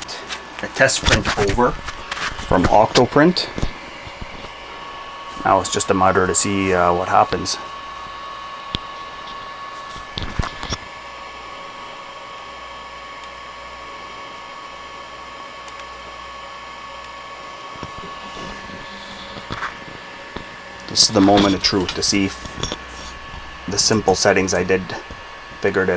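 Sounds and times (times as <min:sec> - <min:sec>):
cooling fans whining: 0:00.0 - 0:25.9
low hum: 0:17.2 - 0:25.6.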